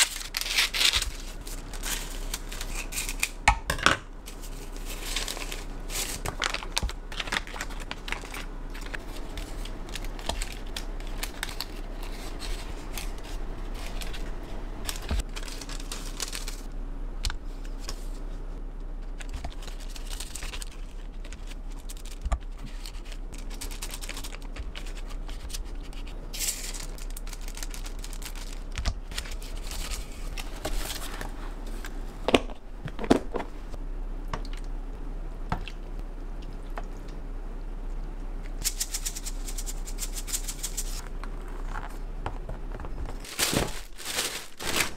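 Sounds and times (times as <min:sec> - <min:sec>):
paper and foil rustling: 0:00.0 - 0:03.4, 0:04.3 - 0:16.7, 0:19.0 - 0:32.0, 0:38.6 - 0:42.0, 0:42.9 - 0:44.9.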